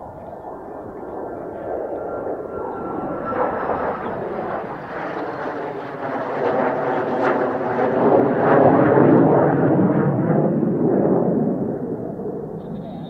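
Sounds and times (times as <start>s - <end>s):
jet flying past: 0.0s - 13.0s.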